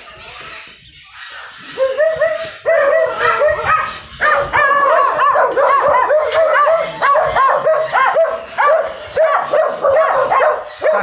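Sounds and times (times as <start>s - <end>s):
dogs barking and yipping: 0.0s - 11.0s.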